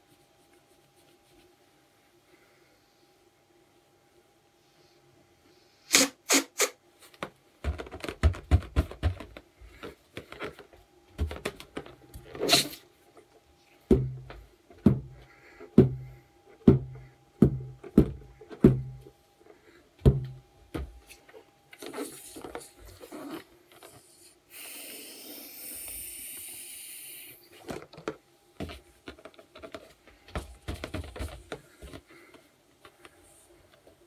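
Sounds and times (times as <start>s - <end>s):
hollow slapping thuds: 13.9s - 19.1s
crackling handling noises: 27.5s - 34.0s.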